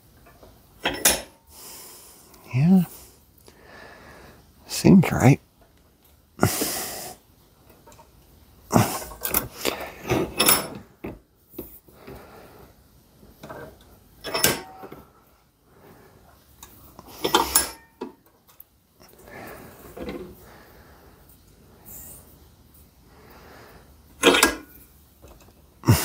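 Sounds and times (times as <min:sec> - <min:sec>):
metal knocks and clatter in vise: 0:13.4 - 0:15.0.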